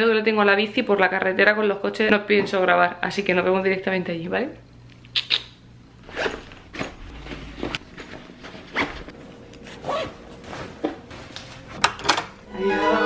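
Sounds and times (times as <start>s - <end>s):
zipper pulls: 6.0s - 6.9s.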